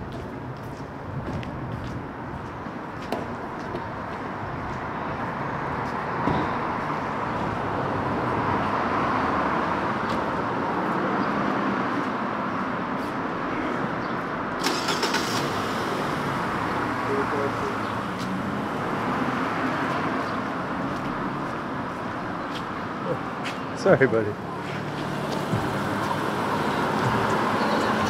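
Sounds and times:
vehicle driving by: 0:24.3 - 0:28.0.

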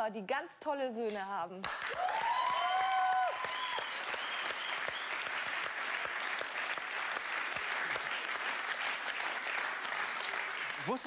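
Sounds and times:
studio audience applauding: 0:01.6 - 0:11.0
crowd calls and whoops: 0:01.9 - 0:04.8.

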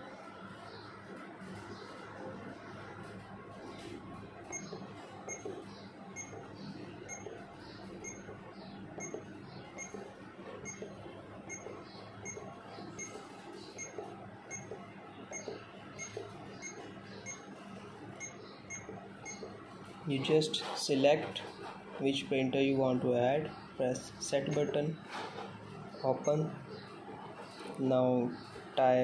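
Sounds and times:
short electronic beeps: 0:04.5 - 0:05.5, 0:15.3 - 0:17.4, 0:18.2 - 0:19.5.

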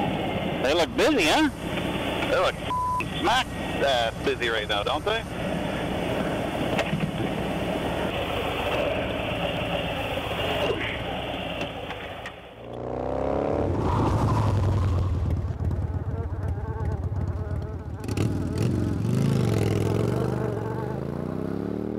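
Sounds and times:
motorcycle engine revving: 0:12.6 - 0:21.9.

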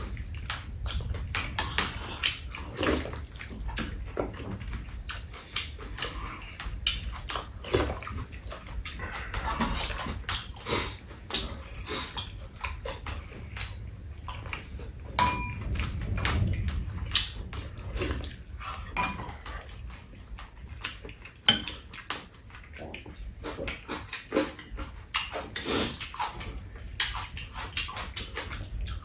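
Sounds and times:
eating and chewing: 0:00.0 - 0:29.0
utensils clinking on metal pan: 0:15.2 - 0:15.7.

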